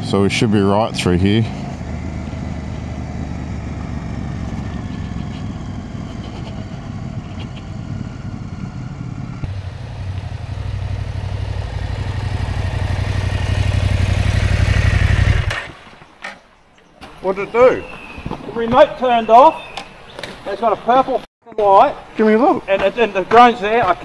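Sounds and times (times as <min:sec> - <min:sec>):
motorcycle engine running: 0:00.0 - 0:15.7.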